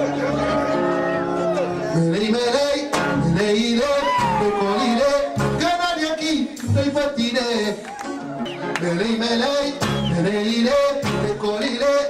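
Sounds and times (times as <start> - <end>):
pop music with singing: 0.0 - 12.0.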